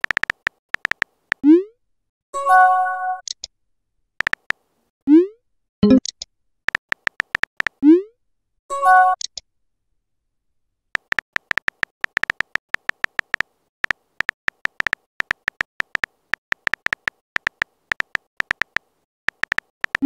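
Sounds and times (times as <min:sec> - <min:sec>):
smartphone keyboard clicks: 0:00.0 - 0:01.4, 0:04.2 - 0:04.6, 0:05.8 - 0:07.8, 0:11.0 - 0:20.0.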